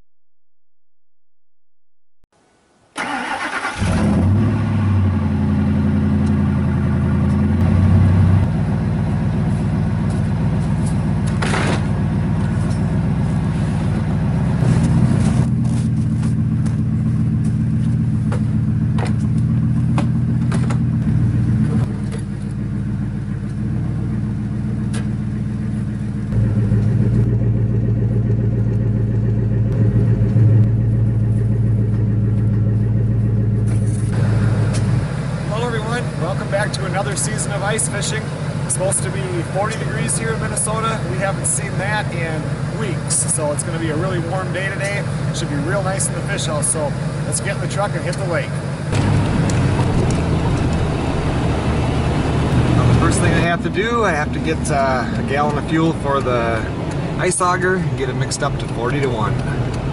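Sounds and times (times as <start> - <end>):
pickup engine idling: 3.0 - 59.9
knocks and clatters: 14.6 - 22.6.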